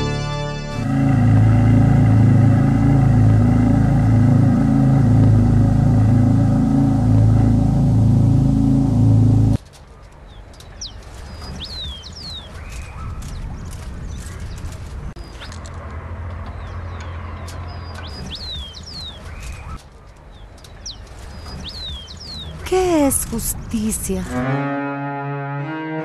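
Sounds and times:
low wavering drone: 0:00.0 - 0:09.6
birds chirping: 0:09.9 - 0:15.6, 0:16.3 - 0:24.3.

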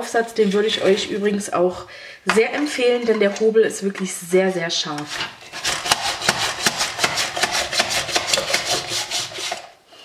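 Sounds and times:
onion scraping over slicer blade: 0:05.0 - 0:09.7.

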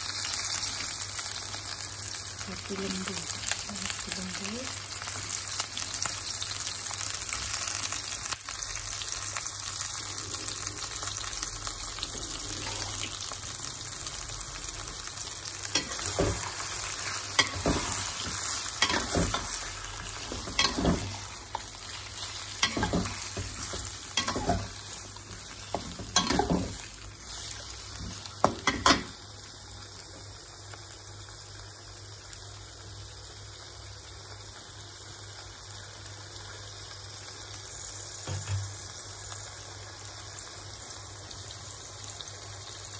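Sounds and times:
liver sizzling in a wok: 0:00.0 - 0:42.9
metal spatula scraping a wok: 0:22.6 - 0:24.8.

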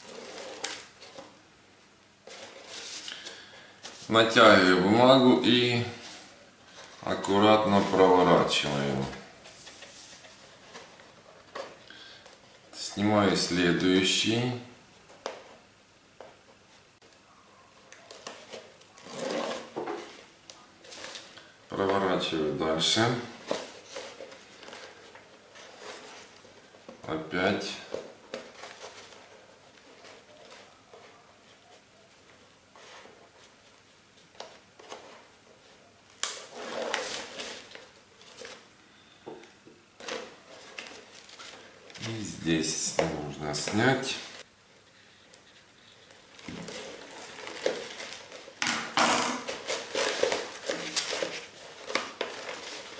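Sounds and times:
paper handling: 0:00.0 - 0:01.4, 0:02.2 - 0:04.5, 0:05.6 - 0:12.8, 0:17.9 - 0:38.7, 0:40.0 - 0:52.9
tape backing peeling: 0:45.4 - 0:52.9.

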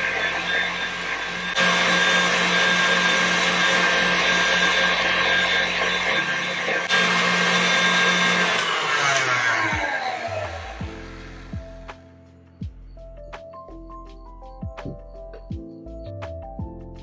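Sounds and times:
stand mixer whisking batter: 0:00.0 - 0:10.8.

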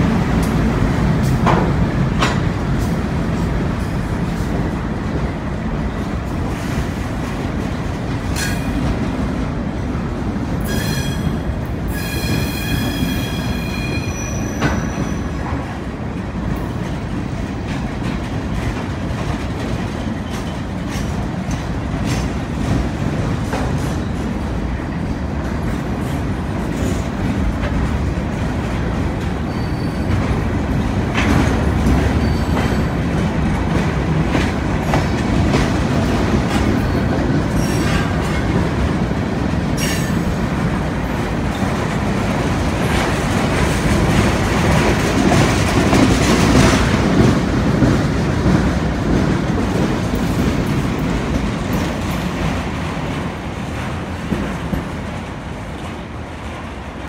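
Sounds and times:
train wheels rumbling on rail: 0:00.0 - 0:57.0
train wheels squealing: 0:10.6 - 0:15.5, 0:29.4 - 0:30.3, 0:32.1 - 0:33.0, 0:36.7 - 0:38.2, 0:39.8 - 0:40.2.

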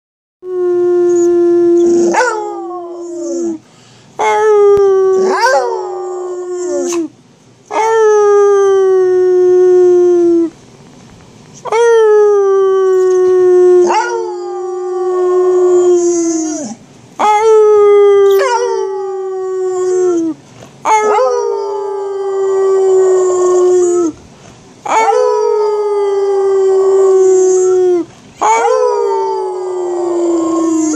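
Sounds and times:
dog howling: 0:00.6 - 0:03.6, 0:04.2 - 0:07.1, 0:11.7 - 0:24.2, 0:24.8 - 0:30.9.

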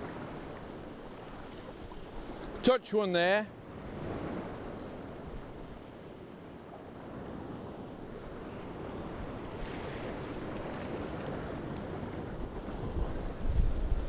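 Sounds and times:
sea surf washing on shore: 0:00.0 - 0:14.0
wind on microphone: 0:03.6 - 0:14.0.

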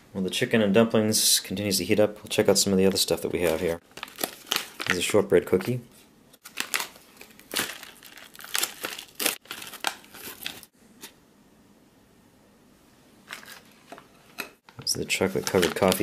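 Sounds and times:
foil pouch crinkling and tearing: 0:03.5 - 0:05.2, 0:06.4 - 0:10.7, 0:15.2 - 0:16.0.

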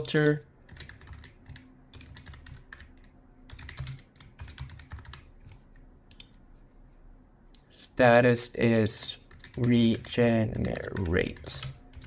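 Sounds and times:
computer keyboard typing: 0:00.0 - 0:06.4, 0:08.6 - 0:12.0.

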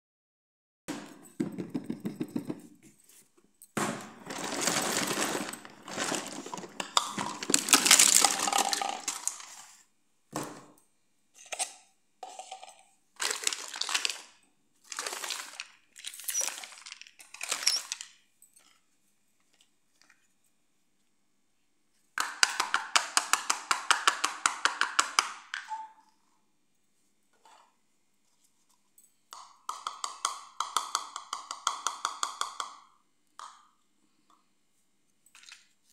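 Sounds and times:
plastic toys clattering on tile: 0:04.2 - 0:09.8, 0:11.4 - 0:18.8.

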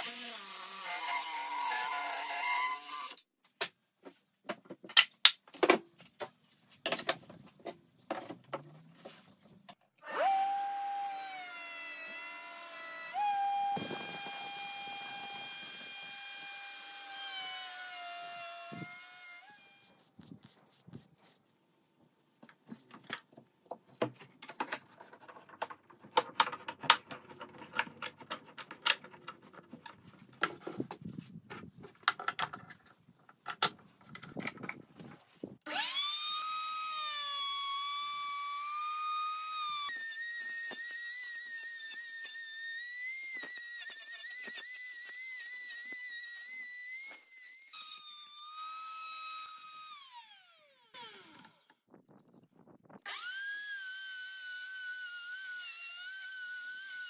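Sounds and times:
electric router whining: 0:10.0 - 0:19.9, 0:53.1 - 0:57.0.

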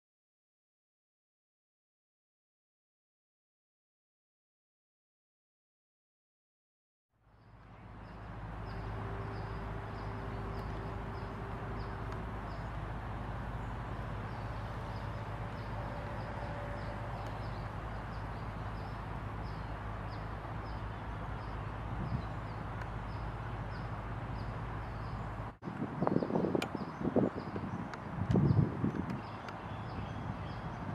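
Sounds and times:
low hum and hiss: 0:07.2 - 0:30.8
faint held tone: 0:14.4 - 0:18.3.

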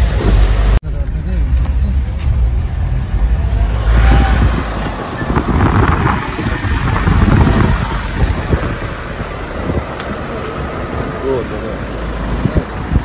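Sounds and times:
vehicle engine and road rumble: 0:00.0 - 0:13.0
wind buffeting microphone: 0:02.4 - 0:13.0.

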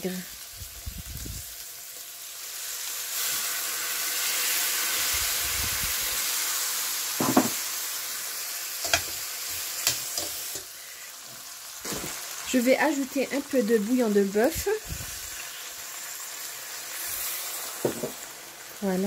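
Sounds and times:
meat sizzling in a pot: 0:00.0 - 0:19.0
metal tongs clinking on pot: 0:08.8 - 0:09.2.

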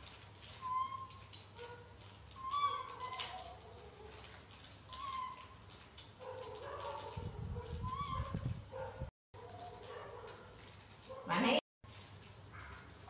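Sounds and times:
monkeys squeaking: 0:00.6 - 0:01.8, 0:02.4 - 0:03.6, 0:04.9 - 0:05.6, 0:07.8 - 0:08.4.

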